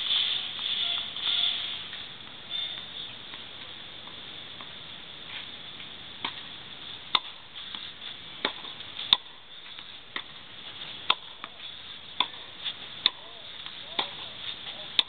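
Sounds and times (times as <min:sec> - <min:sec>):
tennis balls struck with rackets: 0:05.8 - 0:06.5, 0:07.1 - 0:15.0
tennis balls bouncing on court: 0:07.1 - 0:15.0.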